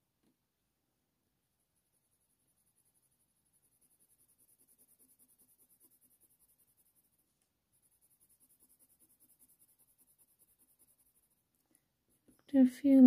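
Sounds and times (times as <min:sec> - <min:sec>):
pencil scratching on paper: 0:01.8 - 0:13.0.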